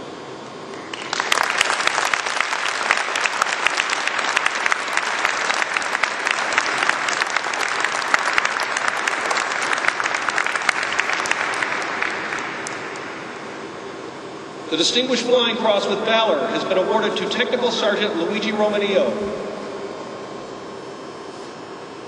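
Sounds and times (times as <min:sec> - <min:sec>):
audience applauding: 0:00.8 - 0:13.6.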